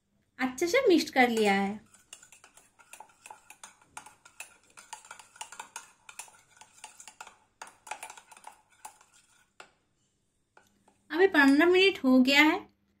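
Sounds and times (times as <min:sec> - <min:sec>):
spoon scraping a steel bowl: 0:01.0 - 0:09.8.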